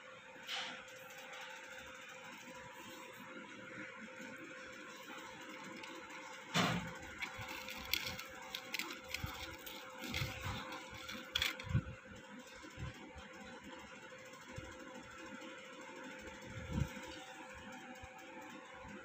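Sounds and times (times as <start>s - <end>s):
fritter crackling as torn: 5.5s - 11.8s.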